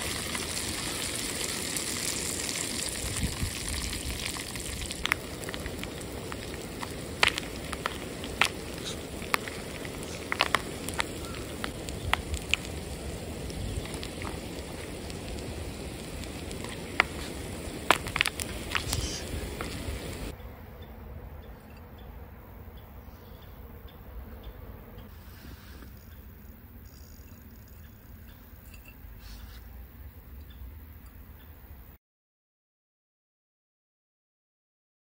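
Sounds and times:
popcorn sizzling in hot oil: 0:00.0 - 0:20.4
popcorn popping: 0:03.8 - 0:20.1.

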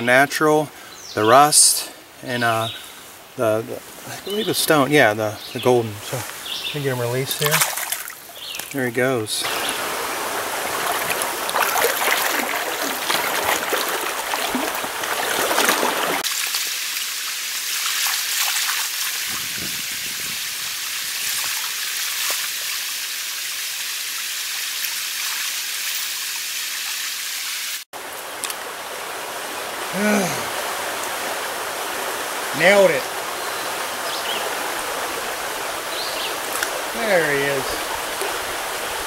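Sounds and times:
stream flowing: 0:00.0 - 0:27.0, 0:28.0 - 0:39.0.

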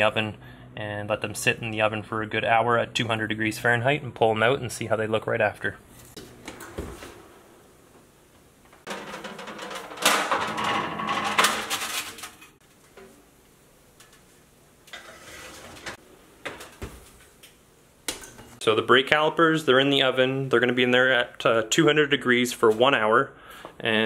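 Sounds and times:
metal scraping and clanking: 0:08.8 - 0:12.6, 0:14.9 - 0:16.0.

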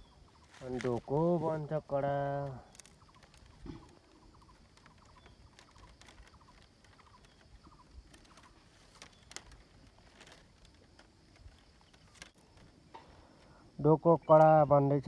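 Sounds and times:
bamboo strips ticking and rustling: 0:00.0 - 0:15.0.

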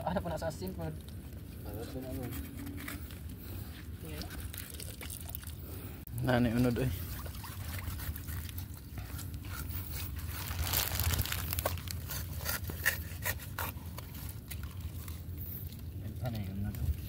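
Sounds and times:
scissors cutting sea urchin shell: 0:11.5 - 0:15.2.

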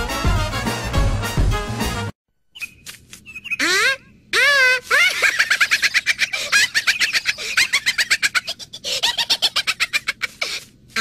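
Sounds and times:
high-pitched cartoon laughter: 0:03.6 - 0:11.0.

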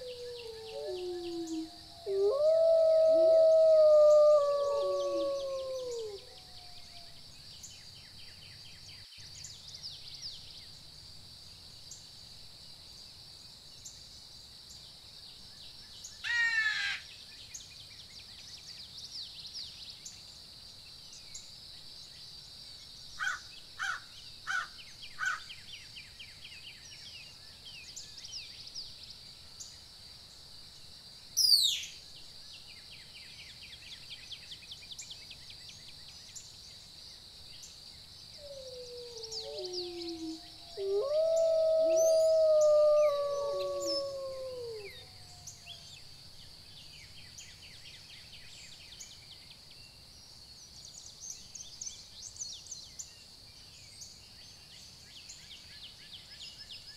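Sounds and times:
insect drone: 0:00.0 - 0:08.2, 0:34.7 - 0:55.4
bird calls: 0:38.4 - 0:45.0.

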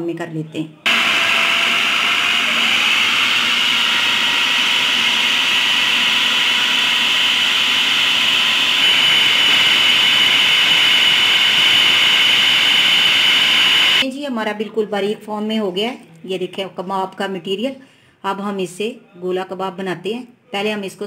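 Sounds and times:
food processor whirring: 0:00.9 - 0:14.0.

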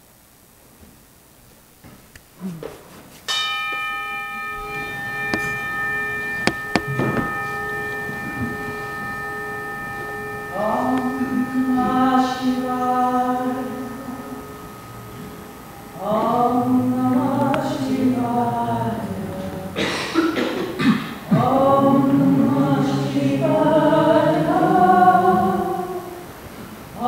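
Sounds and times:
bell ringing: 0:03.3 - 0:19.5
sharp knocks: 0:04.5 - 0:11.3.

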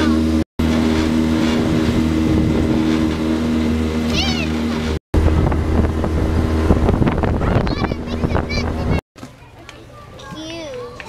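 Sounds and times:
outboard motor running: 0:00.0 - 0:09.0
water noise: 0:00.0 - 0:11.0
wind noise: 0:00.7 - 0:03.6, 0:05.2 - 0:09.0.

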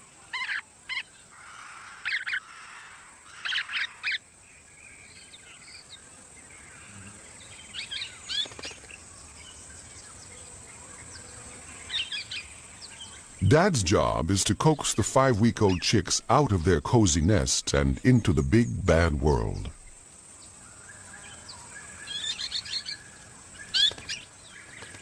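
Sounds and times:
faint high hiss: 0:09.0 - 0:24.1.

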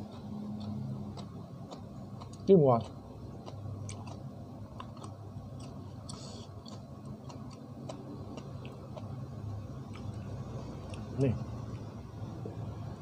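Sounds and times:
person chewing with wet mouth clicks: 0:00.0 - 0:09.2, 0:09.8 - 0:10.2, 0:10.8 - 0:11.1
low steady hum: 0:00.0 - 0:13.0.

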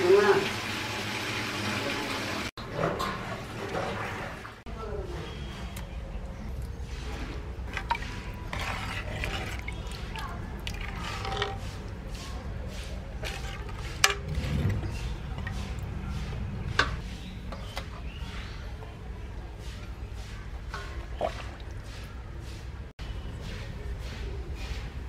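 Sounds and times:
liquid sloshing and dripping: 0:05.7 - 0:17.0, 0:20.7 - 0:22.7.

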